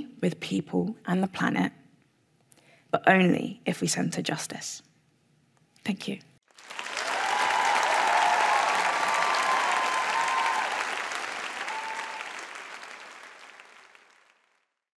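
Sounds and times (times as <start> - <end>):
audience applauding: 6.5 - 14.6.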